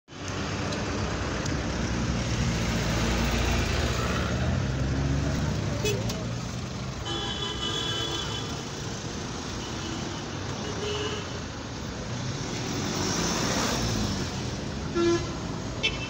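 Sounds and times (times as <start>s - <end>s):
road traffic: 0.1s - 16.0s
vehicle horn: 7.0s - 8.6s, 14.9s - 16.0s.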